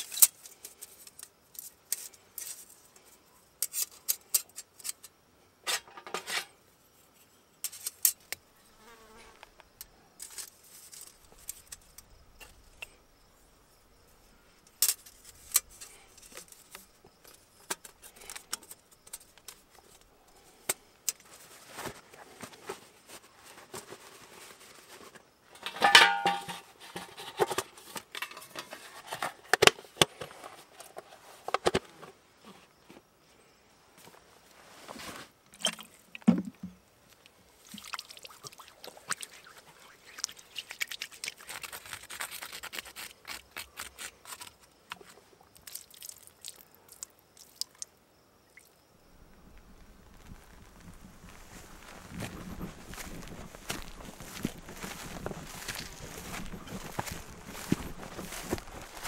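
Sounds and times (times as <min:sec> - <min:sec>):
metal stove panels clinking: 0:25.6 - 0:26.6.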